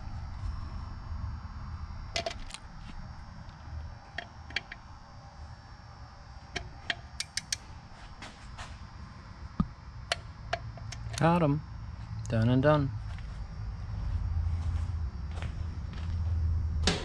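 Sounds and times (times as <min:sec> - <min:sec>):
low steady hum: 0:00.0 - 0:17.0
metallic tool clicks: 0:06.6 - 0:07.6.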